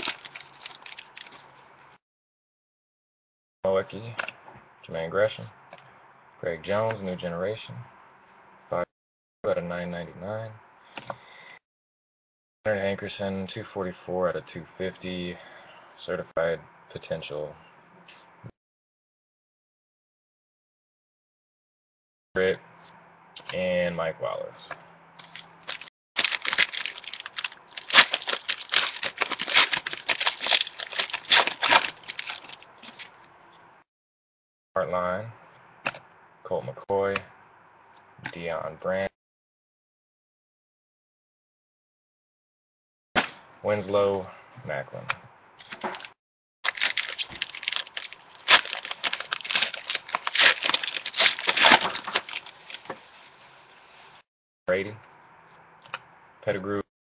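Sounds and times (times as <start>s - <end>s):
foil wrapper crinkling and tearing: 0.0s - 1.5s, 25.2s - 33.2s, 46.6s - 52.9s.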